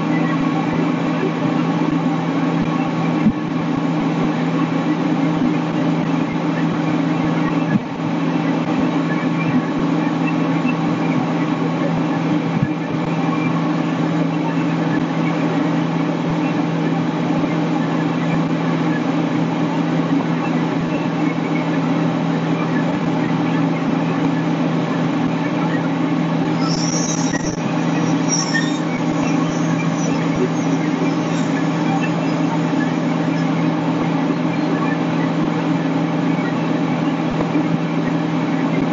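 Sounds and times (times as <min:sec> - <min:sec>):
diesel engine droning: 0:00.0 - 0:38.9
brief high squeaks: 0:26.5 - 0:33.5.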